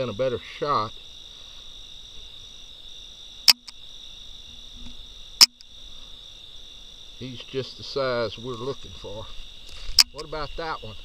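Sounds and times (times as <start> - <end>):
crickets and night insects: 0.0 - 11.0
loud sharp clicks: 3.5 - 3.8, 4.8 - 5.7.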